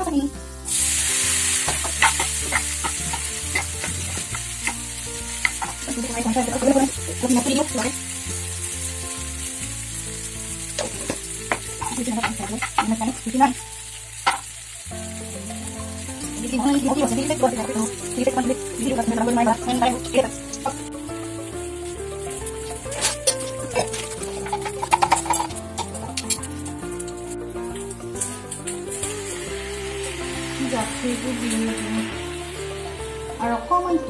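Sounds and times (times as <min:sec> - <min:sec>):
pasta sizzling in frying pan: 0:00.0 - 0:34.0
spoon scraping pan: 0:01.6 - 0:06.8, 0:10.8 - 0:13.4.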